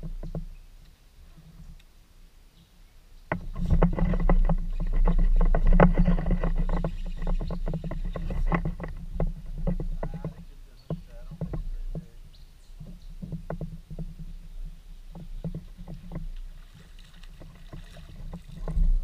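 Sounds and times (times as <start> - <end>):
paddle splashing: 15.1 - 19.0.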